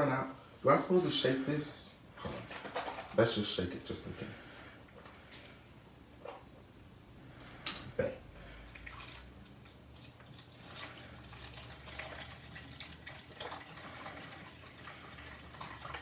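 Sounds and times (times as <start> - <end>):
liquid trickling and dripping: 8.7 - 16.0.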